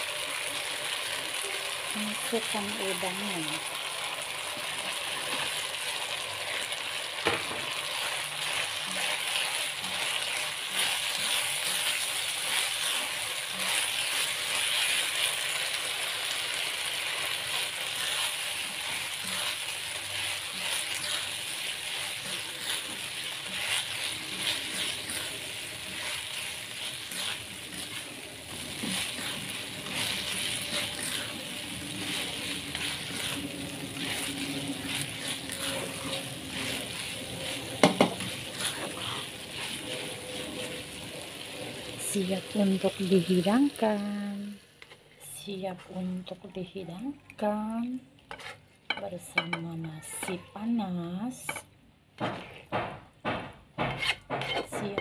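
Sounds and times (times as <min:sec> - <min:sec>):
shrimp sizzling in oil: 0:00.0 - 0:45.5
spatula scraping a wok: 0:04.5 - 0:43.4, 0:44.8 - 0:46.0, 0:48.2 - 0:50.4, 0:52.2 - 0:52.7, 0:53.8 - 0:55.0
spatula knocking against pan: 0:37.8 - 0:38.2, 0:52.2 - 0:55.0.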